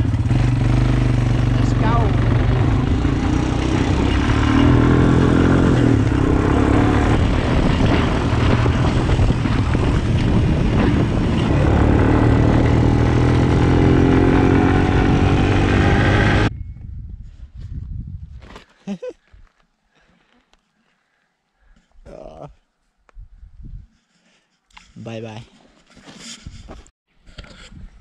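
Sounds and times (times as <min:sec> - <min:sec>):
quad bike engine running: 0:00.0 - 0:16.5
rushing wind: 0:00.0 - 0:18.6, 0:23.1 - 0:24.0.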